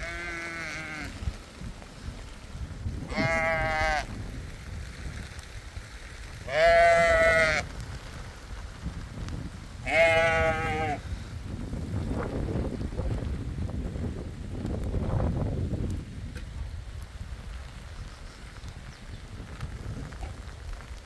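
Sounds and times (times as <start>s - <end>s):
sheep bleating: 0.0s - 1.2s, 3.1s - 4.1s, 6.5s - 7.6s, 9.8s - 11.0s.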